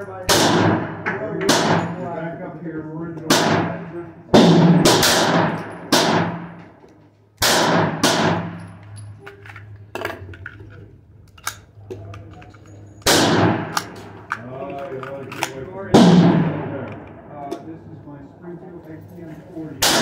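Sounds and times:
pistol gunshots with ringing tail: 0.3 - 2.0, 3.3 - 6.6, 7.4 - 8.7, 13.0 - 13.9, 19.8 - 20.0.

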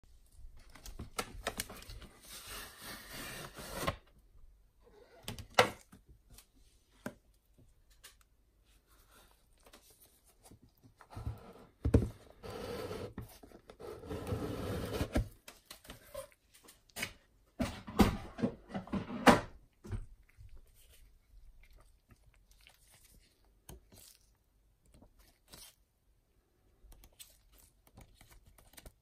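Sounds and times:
cardboard box sliding and rubbing: 2.2 - 4.0, 12.4 - 13.2, 13.8 - 15.3.

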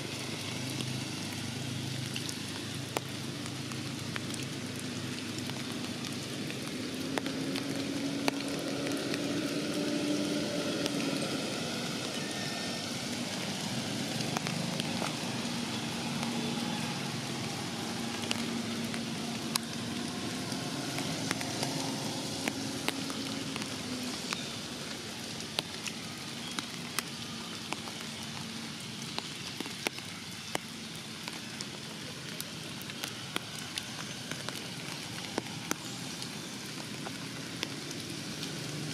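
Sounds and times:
rain falling on leaves: 0.0 - 38.9
sharp drips: 0.0 - 38.9.

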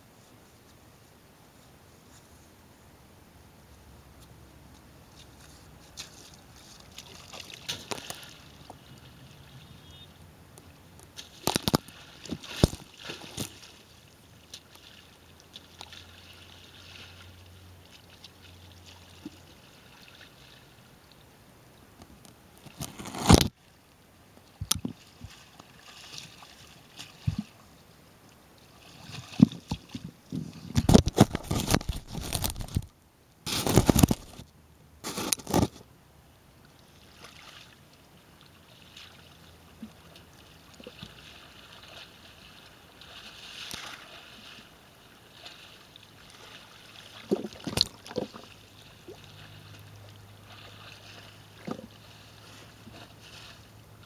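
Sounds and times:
puddle water splashing: 5.1 - 10.1, 11.0 - 20.8, 24.8 - 27.7, 38.5 - 54.0.

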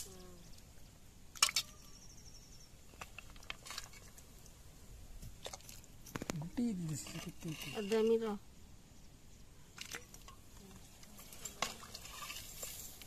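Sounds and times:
soup sloshing: 9.7 - 13.0.

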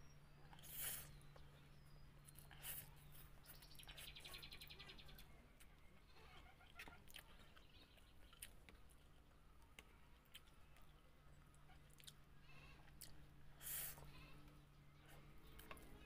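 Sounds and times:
low steady hum: 0.0 - 16.0
chewing and wet mouth clicks: 6.6 - 11.0, 11.9 - 12.2.

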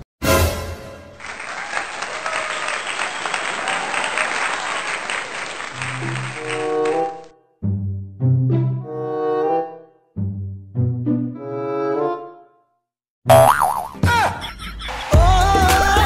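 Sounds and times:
crowd applause: 1.1 - 7.3.

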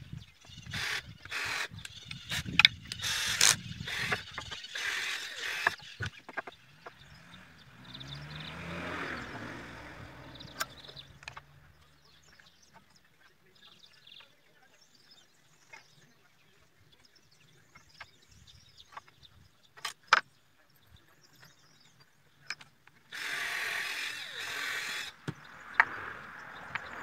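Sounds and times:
screws and wood clicking: 0.4 - 7.0, 22.5 - 25.9
electric drill driving screw: 0.7 - 5.8, 23.1 - 25.2.

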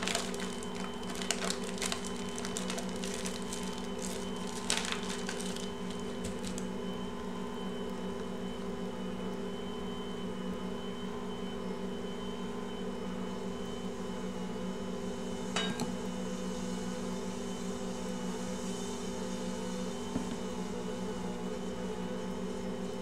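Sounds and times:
stand mixer kneading dough: 0.0 - 10.7.

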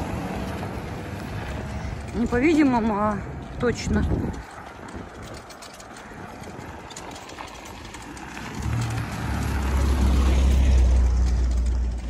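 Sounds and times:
tyre noise on dirt road: 0.0 - 12.0
van engine hum: 0.0 - 12.0.

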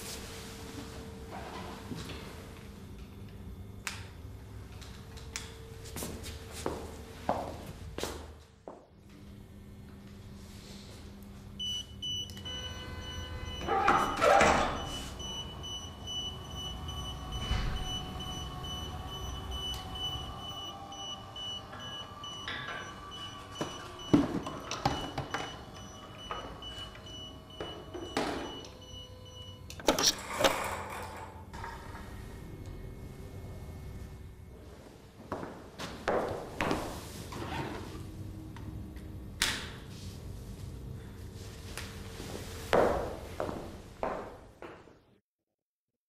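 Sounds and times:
electric hoist motor whining: 11.6 - 34.6.

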